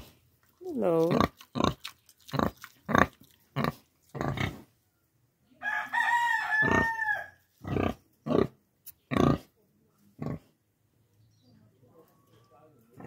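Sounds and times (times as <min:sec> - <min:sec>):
pigs grunting: 0:00.7 - 0:04.7, 0:10.2 - 0:10.6
rooster crowing: 0:05.6 - 0:07.4.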